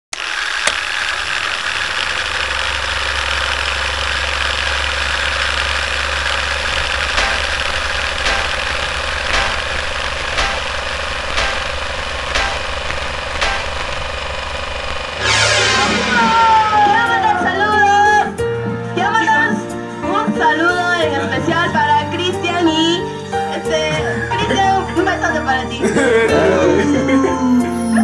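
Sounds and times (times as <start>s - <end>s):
film projector whirring: 0.1s - 16.3s
sharp ticks: 6.2s - 14.4s.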